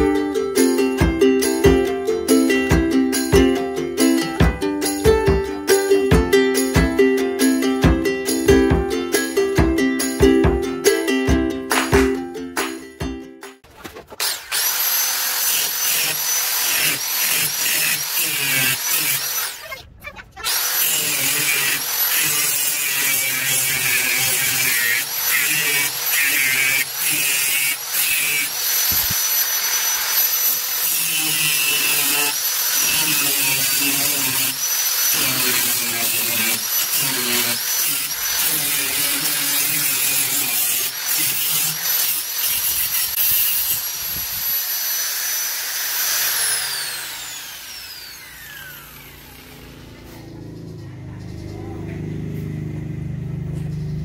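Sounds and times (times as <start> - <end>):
angle grinder cutting sheet metal: 0.0 - 11.1, 11.7 - 12.9, 13.5 - 54.0
grinder spinning down: 14.2 - 19.8, 20.4 - 54.0.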